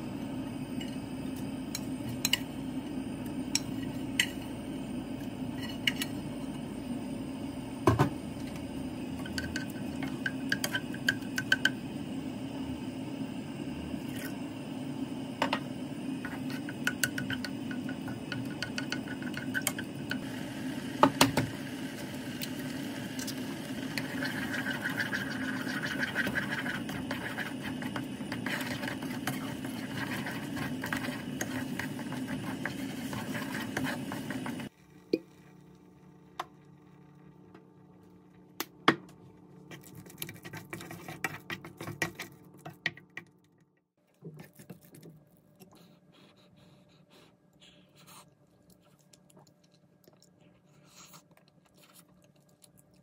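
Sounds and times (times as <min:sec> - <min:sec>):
steady hum: 0:00.0 - 0:42.6
wooden spoon scraping a pot: 0:23.3 - 0:34.7, 0:39.7 - 0:42.9.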